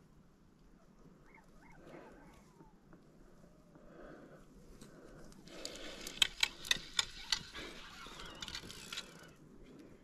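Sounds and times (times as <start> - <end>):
fly reel clicking: 5.6 - 9.3.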